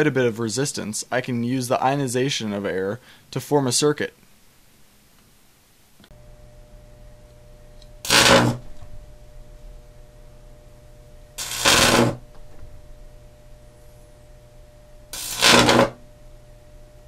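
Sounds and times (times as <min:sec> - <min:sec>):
faint steady hum: 0:00.0 - 0:17.0
electric arcs buzzing and crackling: 0:06.1 - 0:17.0.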